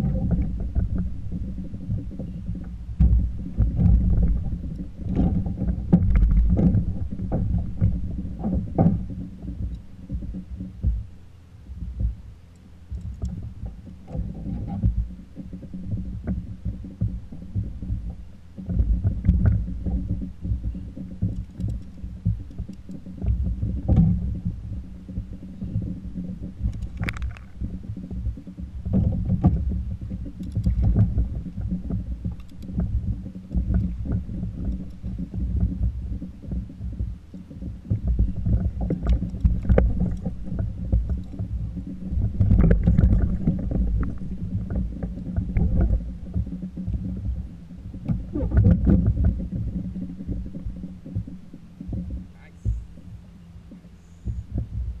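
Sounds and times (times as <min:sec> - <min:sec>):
water lapping against kayak hull: 0:00.0 - 0:55.0
fishing gear knocks and clicks: 0:26.6 - 0:27.7.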